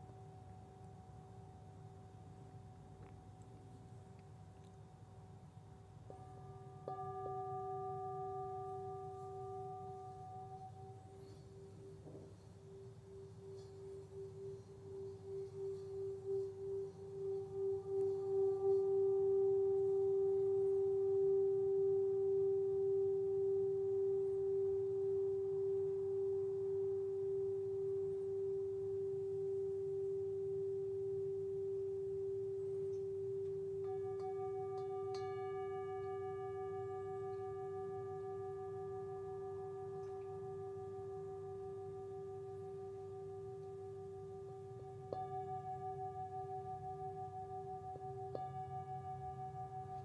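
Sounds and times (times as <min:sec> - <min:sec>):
singing bowl ringing tone: 0:06.1 - 0:50.0.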